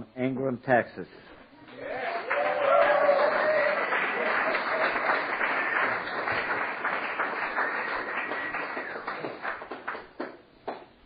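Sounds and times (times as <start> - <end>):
audience applause: 1.7 - 10.4.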